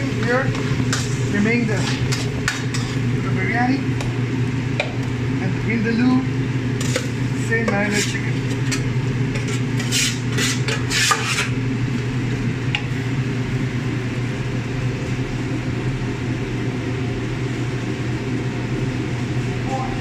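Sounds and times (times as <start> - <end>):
metal spoon scraping a pan: 0.0 - 3.1, 6.8 - 11.6.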